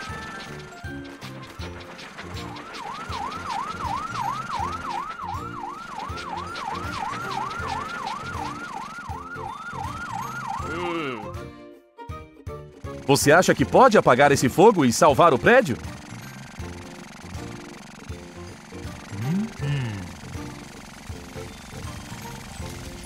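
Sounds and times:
cartoon fire engine siren: 0:01.6 - 0:11.4.

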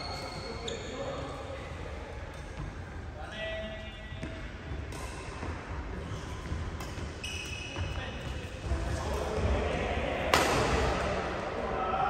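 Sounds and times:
low hum of large hall: 0:00.0 - 0:12.0
rackets striking shuttlecock: 0:04.8 - 0:08.4, 0:10.3 - 0:11.1.

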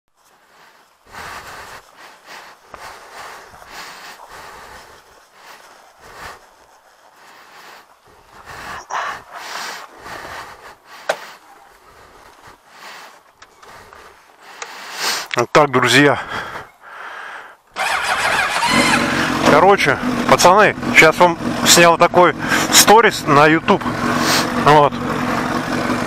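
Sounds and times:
breathy puffs: 0:00.2 - 0:19.4, 0:22.3 - 0:22.8, 0:23.8 - 0:24.6.

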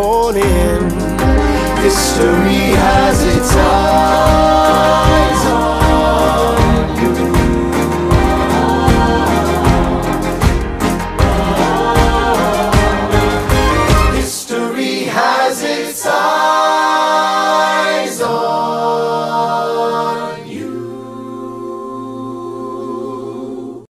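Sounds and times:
drums and bass: 0:00.0 - 0:14.3
choir singing held chords: 0:00.4 - 0:23.9.

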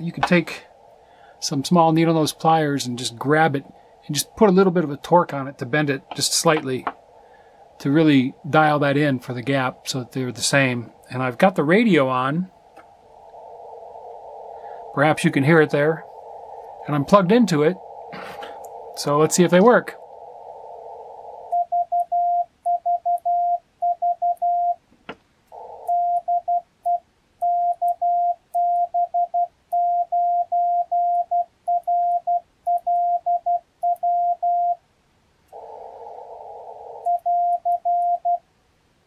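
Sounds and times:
radio receiver hiss: 0:00.0 - 0:22.8, 0:25.5 - 0:27.0, 0:35.4 - 0:38.4
morse code beeps: 0:21.6 - 0:24.8, 0:25.9 - 0:34.8, 0:37.1 - 0:38.4.

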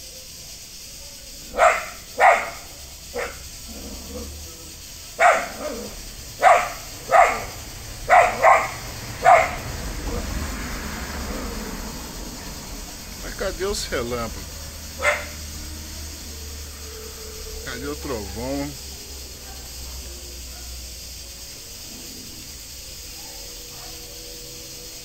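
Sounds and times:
dog barking: 0:01.4 - 0:10.6, 0:14.5 - 0:25.0.

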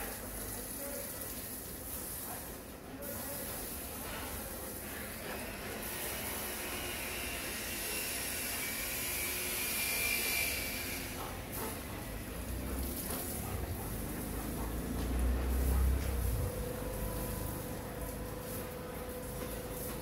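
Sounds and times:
hose water splattering on paving: 0:00.0 - 0:20.0.

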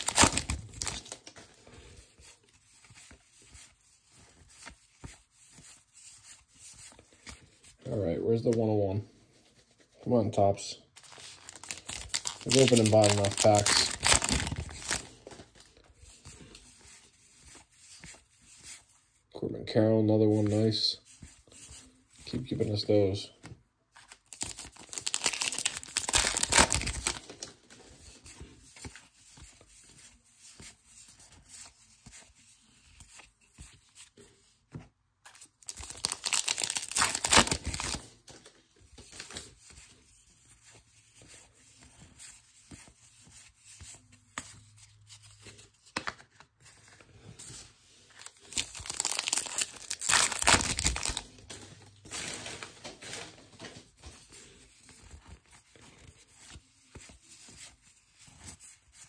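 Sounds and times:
foil wrappers torn and crinkled: 0:00.0 - 0:01.4, 0:11.0 - 0:15.6, 0:24.2 - 0:27.5, 0:35.6 - 0:38.1, 0:48.2 - 0:53.4
cards rustling and clicking: 0:00.0 - 0:07.8, 0:10.9 - 0:19.0, 0:20.3 - 0:59.0.

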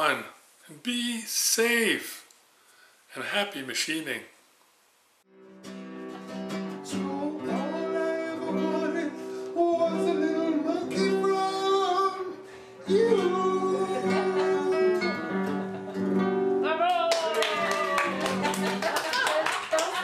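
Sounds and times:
acoustic guitar: 0:05.3 - 0:19.0
person singing: 0:06.8 - 0:15.8.

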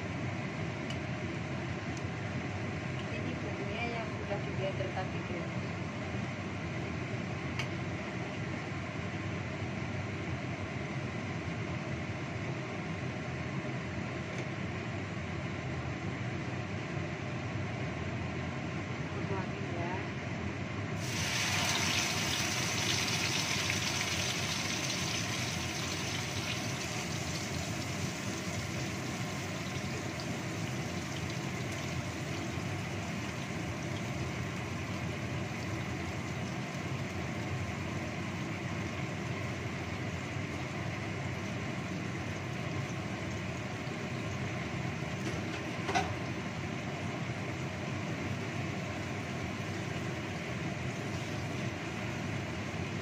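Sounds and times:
range hood fan drone: 0:00.0 - 0:53.0
paste sizzling in hot oil: 0:21.0 - 0:37.1.

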